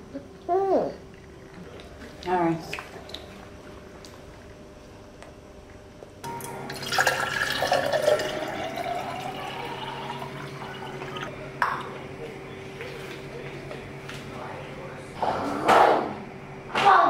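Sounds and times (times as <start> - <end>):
water pouring into a glass: 6.7 - 11.3.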